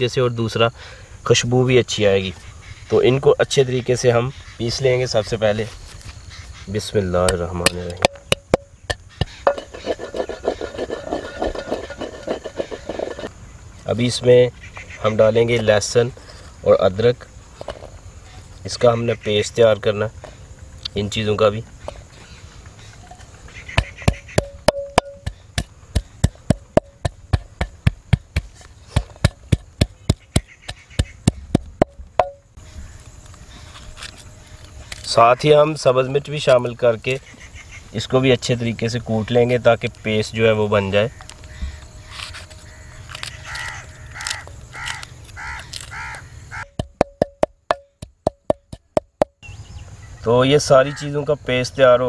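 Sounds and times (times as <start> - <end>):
pestle pounding in clay mortar: 8.0 - 13.3, 23.7 - 32.4, 46.6 - 49.4
crow cawing: 22.8 - 24.6, 30.1 - 31.4, 41.1 - 46.8, 50.8 - 51.2.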